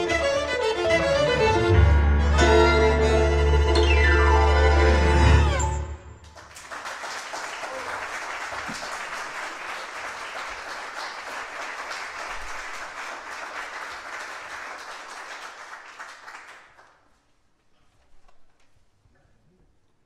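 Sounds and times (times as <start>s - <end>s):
audience applauding: 4.8s - 17.1s.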